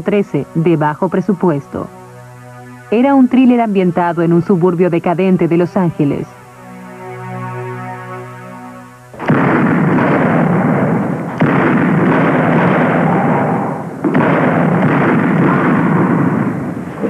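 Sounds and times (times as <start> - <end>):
held musical chord: 0.0 - 10.4
heavy gunfire: 9.2 - 17.0.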